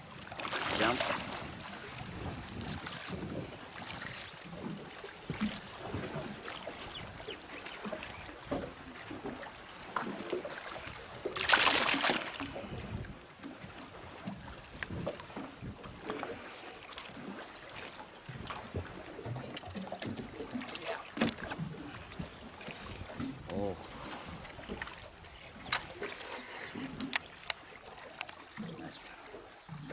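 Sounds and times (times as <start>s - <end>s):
quiet water sounds: 0.0s - 29.9s
loud splash: 0.3s - 1.5s, 11.4s - 12.4s
fish thrashing at surface: 11.4s - 12.4s.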